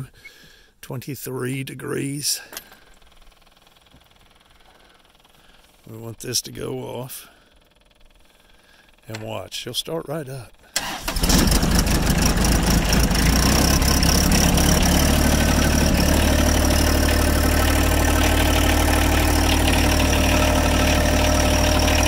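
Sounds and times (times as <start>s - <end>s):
diesel tractor engine starting and idling: 10.7s - 22.0s.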